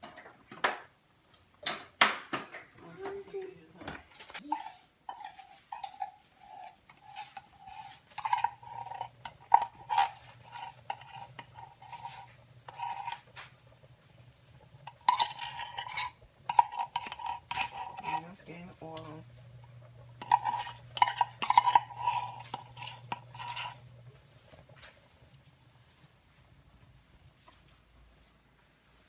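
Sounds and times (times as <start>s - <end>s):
low steady hum: 2.8s - 29.0s
metal spoon scraping a tin can: 4.2s - 13.4s, 14.8s - 18.4s, 20.2s - 23.8s.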